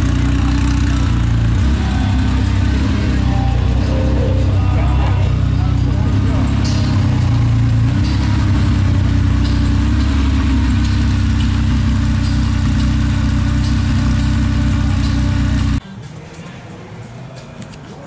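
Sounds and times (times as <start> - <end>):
car engine idling: 0.0 - 15.8.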